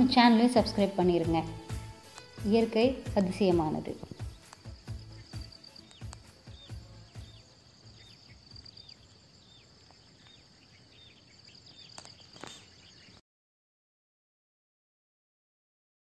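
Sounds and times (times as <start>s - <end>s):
high insect drone: 0.0s - 13.1s
bird chirping: 0.0s - 13.2s.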